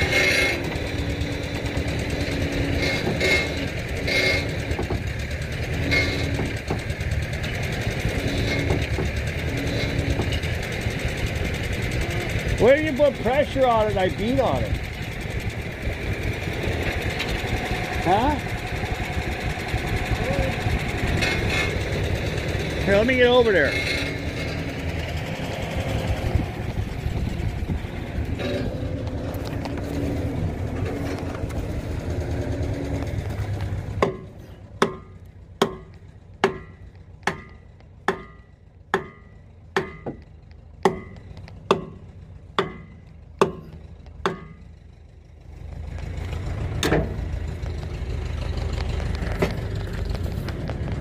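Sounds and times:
steady low rumble: 0:10.1 - 0:23.0, 0:23.9 - 0:51.0
hammer striking steel wheel: 0:33.9 - 0:44.8.

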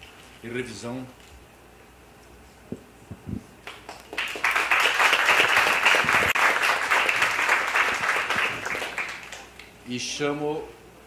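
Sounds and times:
audience applauding: 0:03.6 - 0:09.6.

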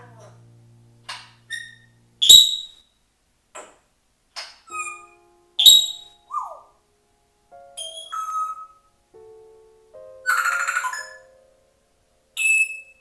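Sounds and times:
parrot whistles and high calls: 0:01.5 - 0:02.8, 0:04.7 - 0:06.7, 0:07.8 - 0:08.9, 0:10.2 - 0:11.3, 0:12.4 - 0:13.0.

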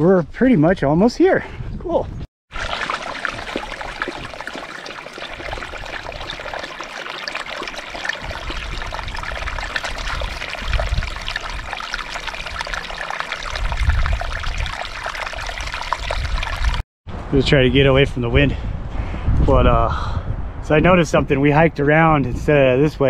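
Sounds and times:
wind on microphone: 0:01.4 - 0:02.3, 0:08.1 - 0:23.0
wind buffeting microphone: 0:07.9 - 0:23.0.

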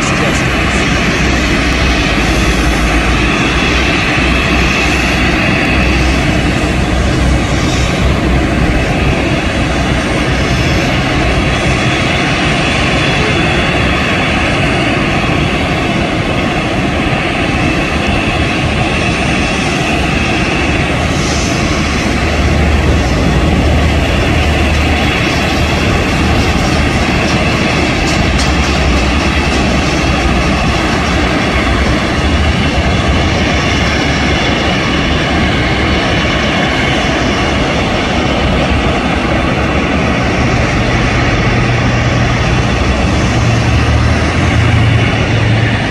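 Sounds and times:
jet engine high whine: 0:00.0 - 0:45.9
jet engine rush: 0:00.0 - 0:45.9
low rumble: 0:18.0 - 0:45.9.

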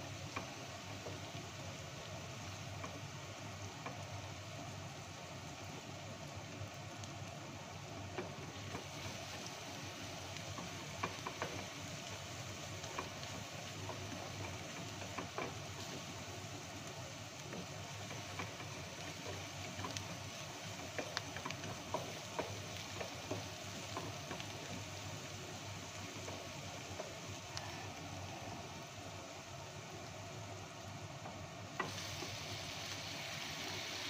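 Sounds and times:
onion sizzling in oil: 0:00.0 - 0:34.0.

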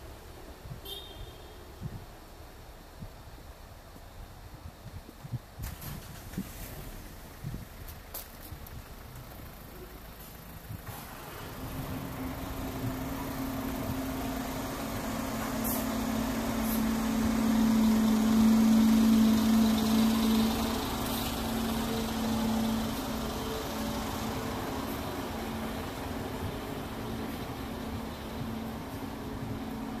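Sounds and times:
vehicle engine passing slowly: 0:06.4 - 0:30.0.

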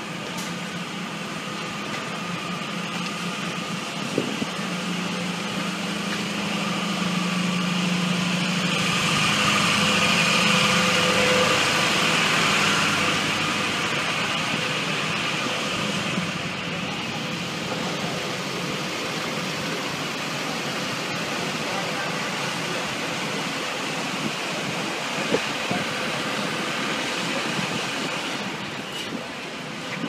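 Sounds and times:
engines idling: 0:00.0 - 0:30.0.

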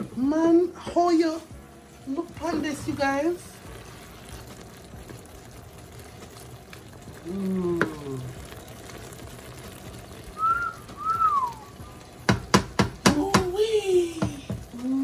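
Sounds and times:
shrimp sizzling in a pan: 0:00.0 - 0:15.0
person humming: 0:07.2 - 0:08.3, 0:13.1 - 0:15.0
whistled notes: 0:10.4 - 0:12.0.

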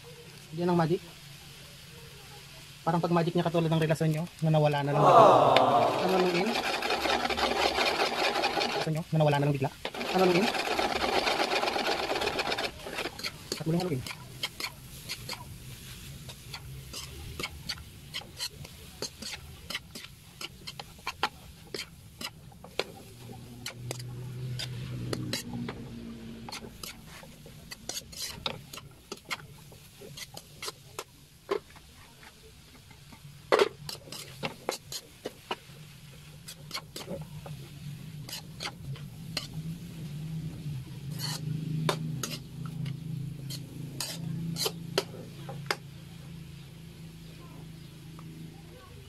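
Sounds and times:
metal spatula scraping wok: 0:26.4 - 0:29.4, 0:33.8 - 0:35.5, 0:38.0 - 0:39.6, 0:40.9 - 0:45.2.

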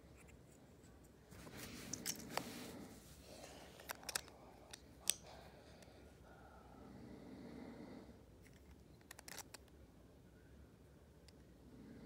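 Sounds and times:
soft rustle: 0:00.0 - 0:04.3
plastic pieces clicking: 0:03.8 - 0:05.2, 0:08.5 - 0:09.8.

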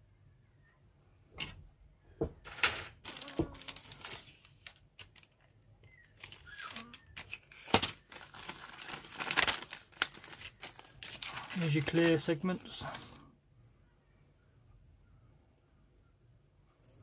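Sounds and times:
plastic bag crinkling: 0:02.9 - 0:13.2.

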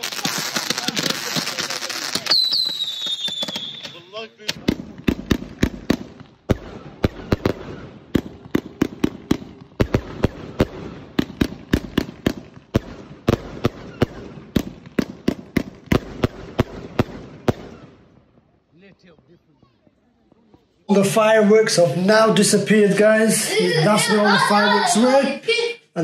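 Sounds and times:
firework crackle: 0:00.0 - 0:18.1
firework bangs: 0:00.0 - 0:19.2.

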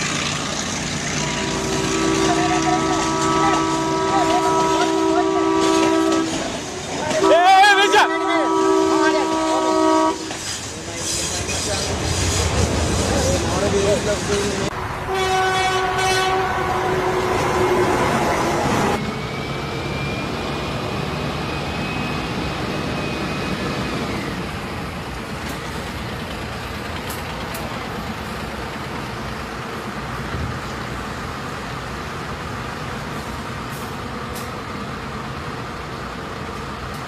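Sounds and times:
lorry engine and road noise: 0:16.5 - 0:37.0.

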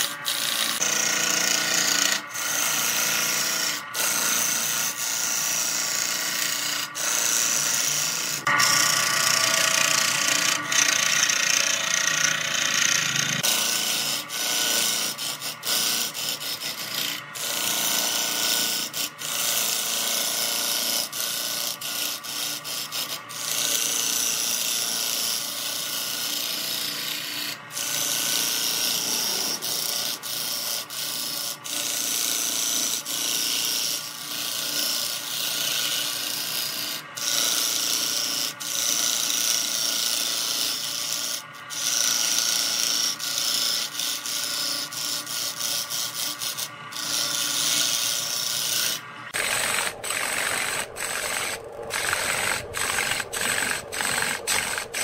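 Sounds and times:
lathe tool scraping wood: 0:00.0 - 0:55.0.

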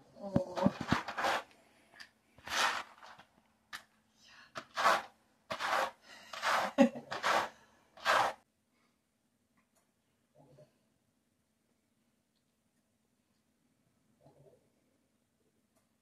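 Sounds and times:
brush strokes through dog fur: 0:04.6 - 0:08.4.

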